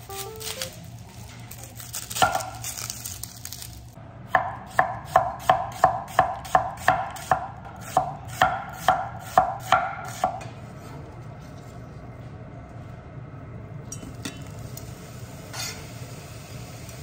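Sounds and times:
knife slicing onion on wooden board: 4.4 - 10.4.

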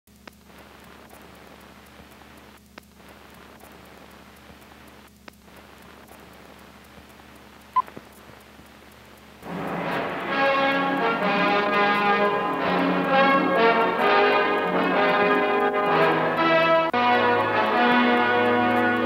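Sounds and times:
sharp clicks: 0.1 - 10.2
film soundtrack hiss and hum: 0.1 - 19.0.

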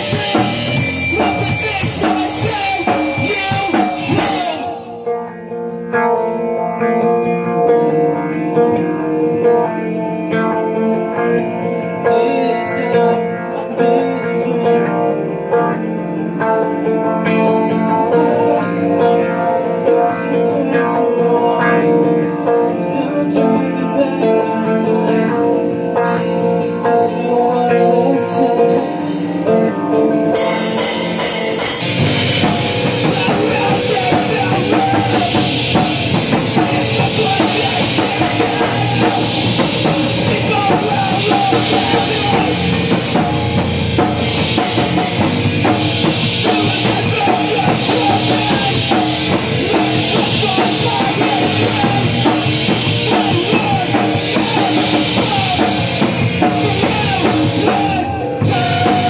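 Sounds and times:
drums with cymbals: 0.0 - 4.9, 29.9 - 59.0
electric guitar: 0.0 - 59.0
live rock band playing: 0.0 - 59.0.

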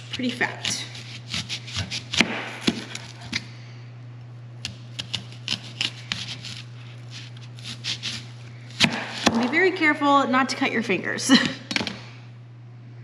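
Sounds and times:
knife slicing onion on cutting board: 0.1 - 3.4, 4.6 - 9.5.

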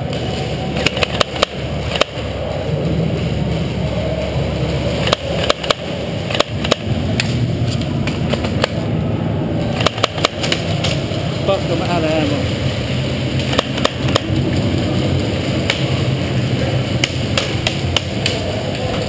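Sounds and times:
low background rumble: 0.0 - 19.0
airsoft gunshots: 0.7 - 2.3, 5.0 - 8.8, 9.7 - 11.0, 13.4 - 14.4, 16.9 - 18.6.

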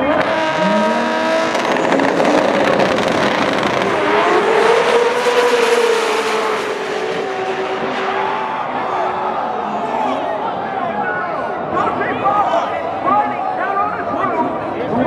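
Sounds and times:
cars accelerating hard: 0.0 - 10.3
race car engines revving: 0.0 - 11.5.

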